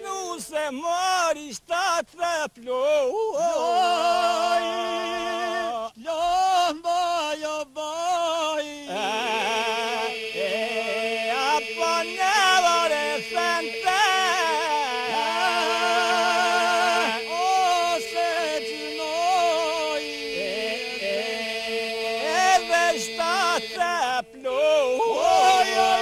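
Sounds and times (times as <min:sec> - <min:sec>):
men singing solo lines: 0:00.0 - 0:26.0
men's voices holding a drone: 0:08.8 - 0:26.0.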